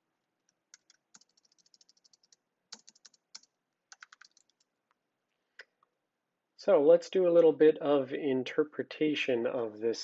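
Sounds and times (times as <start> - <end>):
typing on computer keyboard: 0.7 - 4.7.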